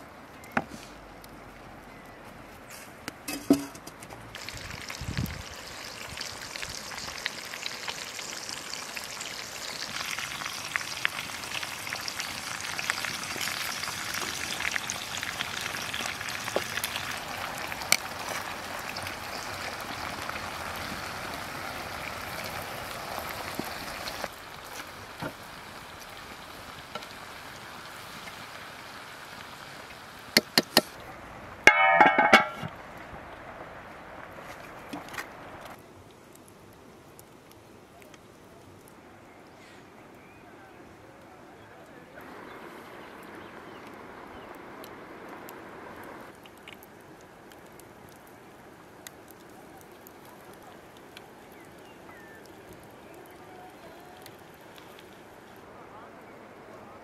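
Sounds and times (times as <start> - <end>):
metal lid clanking on pan: 3.3 - 3.9, 31.7 - 32.7
fish sizzling in a frying pan: 4.3 - 30.9.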